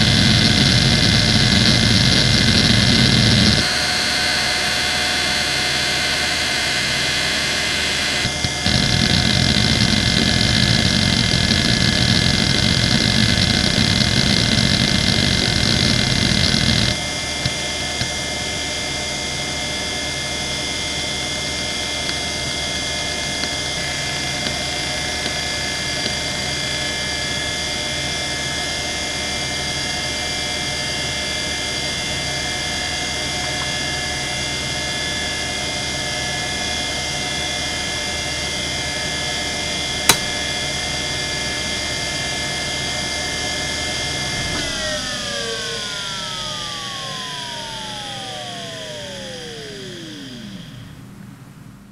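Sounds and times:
hard drive spindle humming: 0.0s - 18.5s, 40.1s - 51.9s
sharp click: 40.1s - 40.6s.

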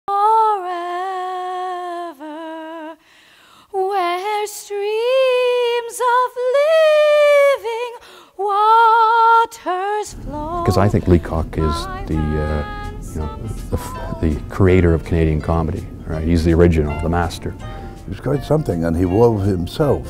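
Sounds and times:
woman singing unaccompanied: 0.1s - 3.0s, 3.7s - 15.6s.

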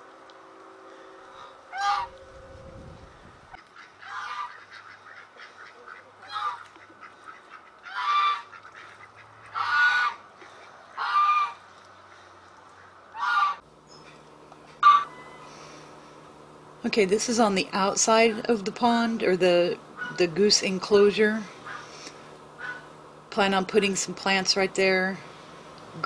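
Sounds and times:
geese honking: 1.2s - 2.4s, 3.5s - 13.6s, 14.8s - 15.8s.

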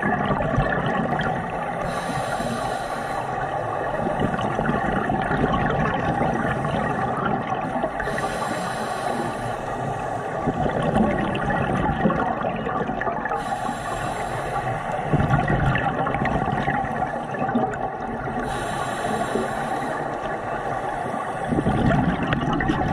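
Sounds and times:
bubbles gurgling: 0.0s - 2.0s, 3.8s - 8.3s, 10.4s - 13.4s, 14.6s - 19.4s, 21.4s - 22.9s
regulator breathing hiss underwater: 1.7s - 4.6s, 7.9s - 10.8s, 13.4s - 15.1s, 18.4s - 22.2s.

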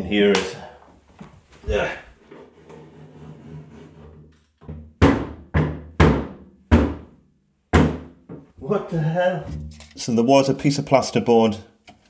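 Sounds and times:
heavy thuds on plasterboard: 4.6s - 8.4s.

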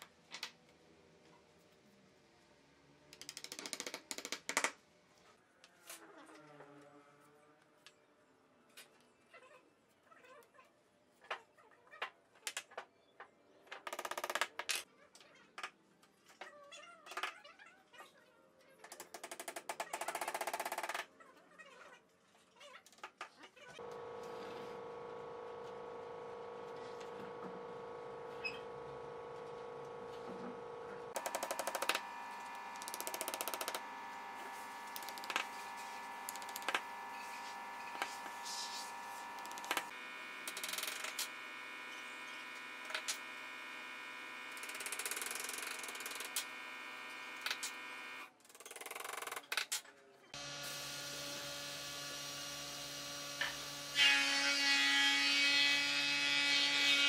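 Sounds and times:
steady hum: 23.8s - 44.4s.

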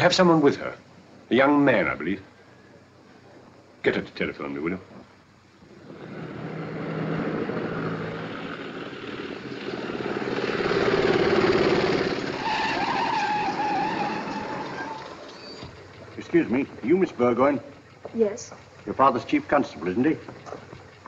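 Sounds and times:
motorcycle and car engines: 5.6s - 21.0s
high wavering brake squeal: 10.7s - 15.9s.

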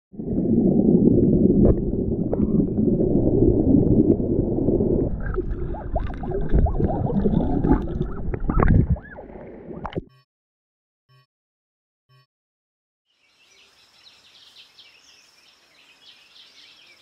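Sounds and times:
underwater stream rushing: 0.1s - 10.0s
water bubbling gurgles: 0.1s - 10.1s.

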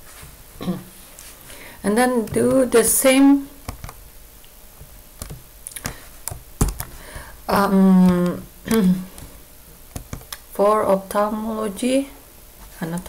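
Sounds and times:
computer keyboard keystrokes: 3.6s - 4.0s, 5.2s - 7.0s, 9.9s - 10.4s
person voicing hesitation: 7.5s - 9.2s.

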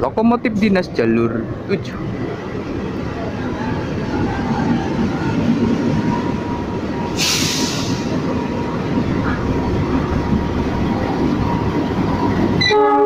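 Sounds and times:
diesel locomotives rumbling: 0.0s - 13.0s
burst of hiss: 7.2s - 8.1s
locomotive horn: 12.6s - 13.0s.

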